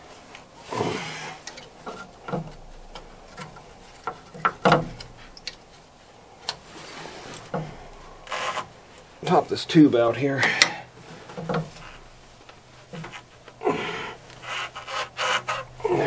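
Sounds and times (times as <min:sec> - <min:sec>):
knocks and clunks of engine parts: 0:01.4 - 0:05.8, 0:07.3 - 0:08.7, 0:10.4 - 0:13.3.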